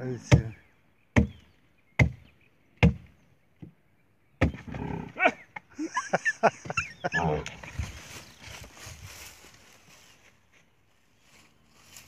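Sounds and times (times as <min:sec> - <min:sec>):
axe chopping wood: 0:01.2 - 0:01.4, 0:02.0 - 0:02.2, 0:02.8 - 0:03.1, 0:04.4 - 0:04.7
scuffling noise: 0:07.6 - 0:12.0.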